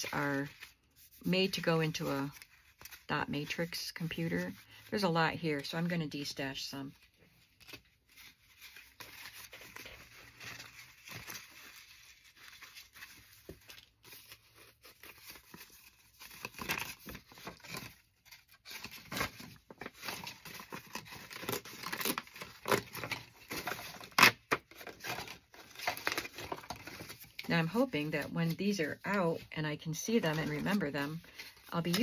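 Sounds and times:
index cards rustling: 0:07.0 - 0:32.0.

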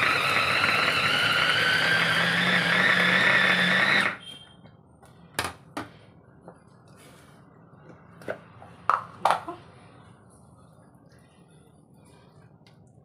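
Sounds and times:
electric chopper motor whining: 0:00.0 - 0:04.2.

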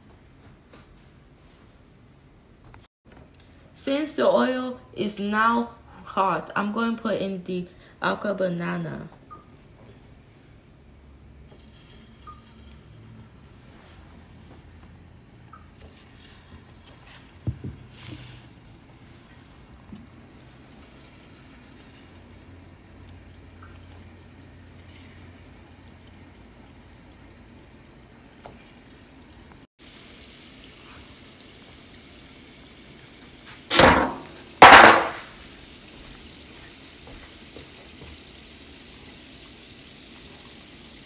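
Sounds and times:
dough balls frying in oil: 0:09.4 - 0:41.0.

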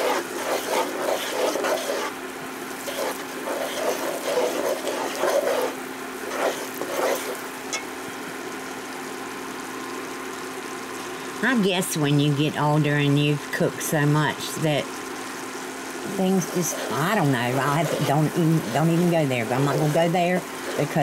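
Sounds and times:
spoon scraping frying pan: 0:00.0 - 0:02.2, 0:02.8 - 0:07.9, 0:16.2 - 0:21.0
faint steady hum: 0:00.0 - 0:21.0.

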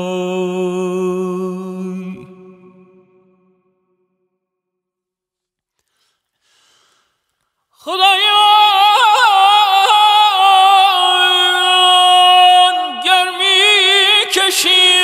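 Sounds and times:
man singing with warbling ornaments: 0:00.0 - 0:03.9, 0:07.7 - 0:15.0.

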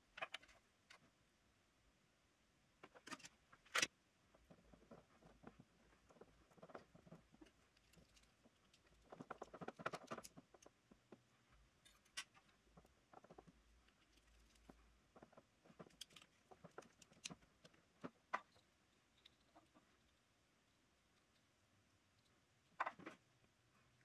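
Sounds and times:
clicks and rustles of handling wires: 0:00.0 - 0:01.2, 0:02.8 - 0:20.2.

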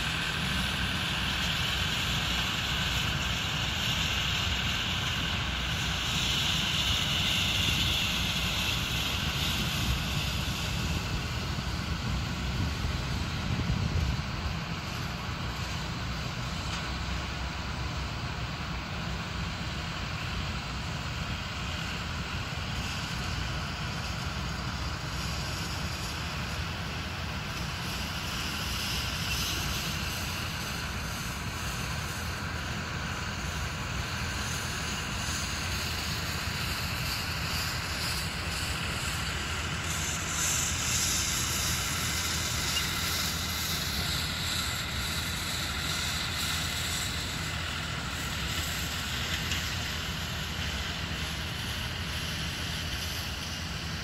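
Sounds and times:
wind noise on microphone: 0:07.0 - 0:15.4.

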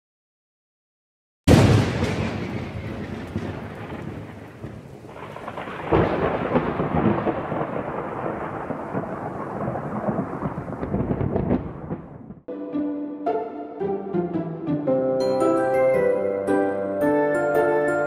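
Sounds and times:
thunder rumbling: 0:01.5 - 0:12.5
steady rain: 0:02.4 - 0:12.1.

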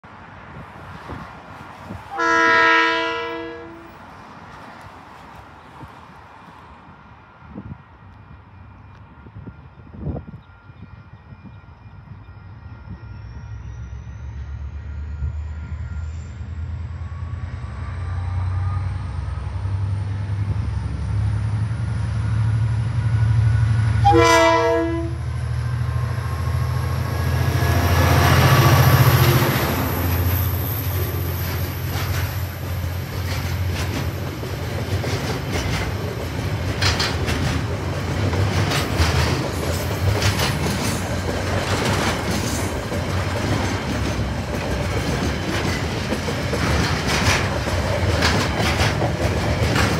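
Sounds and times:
diesel locomotive passing: 0:00.0 - 0:49.9
train horn blast: 0:02.1 - 0:04.0, 0:24.0 - 0:30.2
wagon wheels clicking over rails: 0:33.2 - 0:49.9.

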